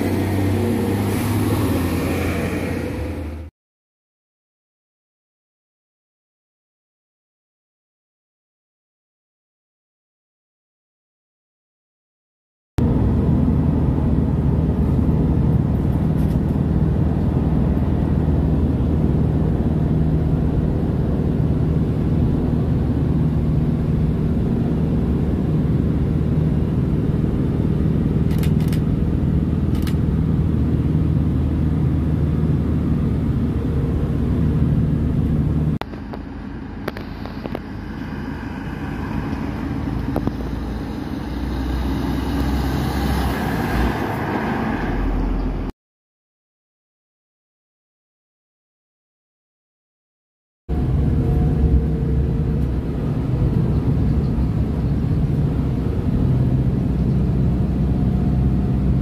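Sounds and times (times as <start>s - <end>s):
truck diesel engine approaching: 0.0s - 3.5s, 12.8s - 45.7s, 50.7s - 59.0s
vehicle engine drone from inside: 0.0s - 3.5s, 12.8s - 45.7s, 50.7s - 59.0s.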